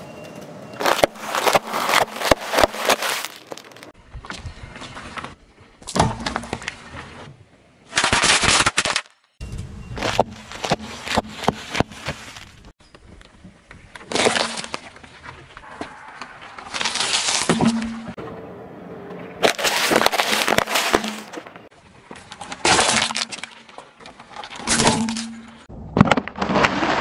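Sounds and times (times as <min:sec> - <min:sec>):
tyre crushing snack packets: 0:00.8 - 0:03.9, 0:19.4 - 0:21.6.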